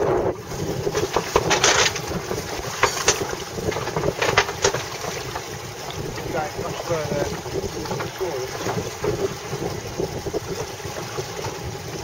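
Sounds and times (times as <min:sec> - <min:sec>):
water washing: 0:00.0 - 0:12.0
wind buffeting microphone: 0:00.0 - 0:12.0
water slaps and knocks: 0:00.5 - 0:12.0.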